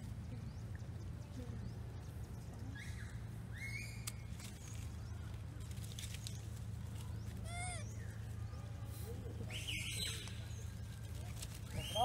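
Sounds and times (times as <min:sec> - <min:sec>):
baby monkey squealing: 0:07.4 - 0:07.9.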